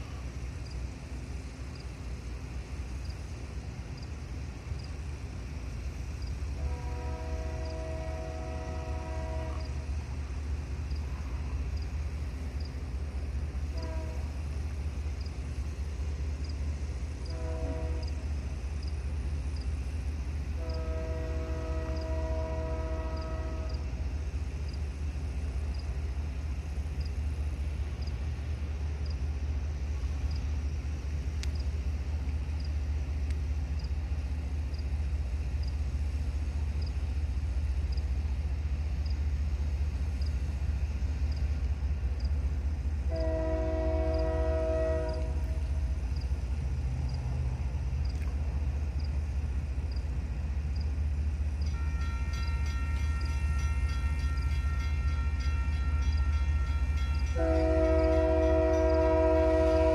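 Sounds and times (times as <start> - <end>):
train rumble: 0.0 - 59.9
train air horn: 6.5 - 10.0, 13.6 - 14.4, 17.3 - 18.4, 20.5 - 24.0, 43.1 - 45.8, 51.7 - 59.9.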